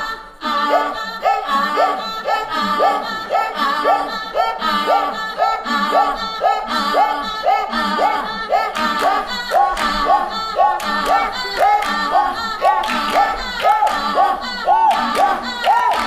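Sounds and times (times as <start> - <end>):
women singing a cappella chant: 0.0 - 16.0.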